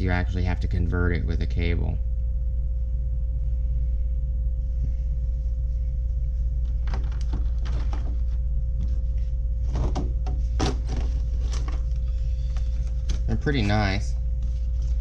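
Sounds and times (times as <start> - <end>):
low hum with faint tone: 0.0 - 15.0
plastic packaging clicking and crinkling: 6.7 - 8.4.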